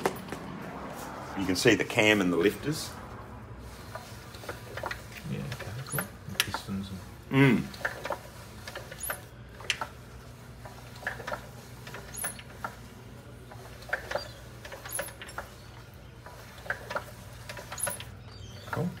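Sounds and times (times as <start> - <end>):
engine low hum: 0.0 - 19.0
moving parts clicking: 3.7 - 6.9, 7.6 - 19.0.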